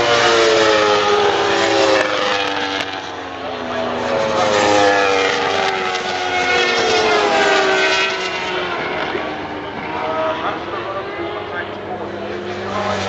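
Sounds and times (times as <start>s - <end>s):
racing motorbikes passing: 0.0s - 13.0s.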